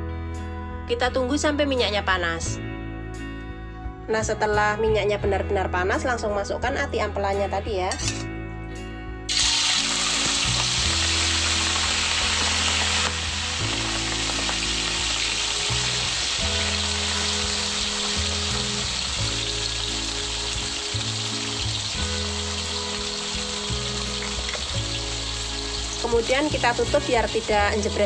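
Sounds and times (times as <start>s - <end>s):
meat sizzling in hot oil: 9.3s - 28.0s.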